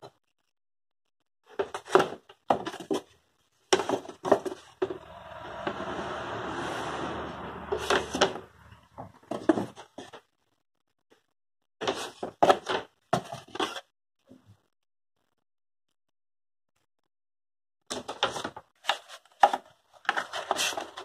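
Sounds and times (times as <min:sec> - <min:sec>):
wooden sheet scraping: 0:04.6 - 0:09.1.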